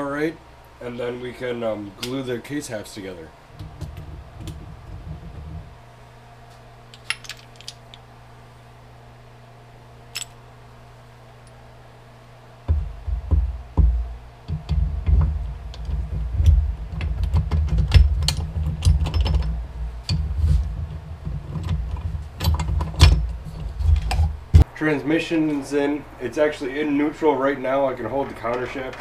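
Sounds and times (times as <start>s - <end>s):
heavy uneven low rumble: 3.3s - 6.0s, 12.6s - 24.8s.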